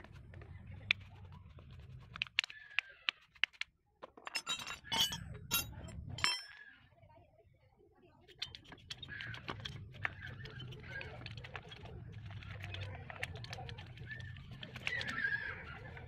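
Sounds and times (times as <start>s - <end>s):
metal tools clinking: 4.2s - 6.6s.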